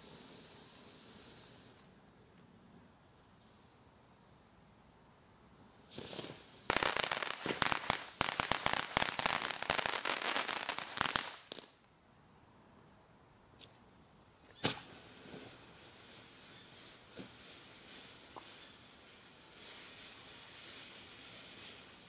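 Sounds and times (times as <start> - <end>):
firework hiss: 0.0 - 1.9, 5.8 - 11.8, 14.6 - 22.0
firework crackling: 5.8 - 11.9, 14.6 - 22.0.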